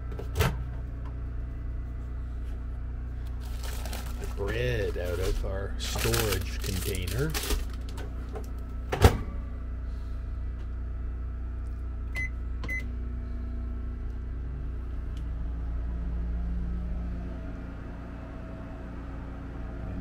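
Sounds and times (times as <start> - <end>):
generator droning: 0.0 - 20.0
microwave running hum: 0.0 - 20.0
microwave keypad beeps: 12.1 - 12.9.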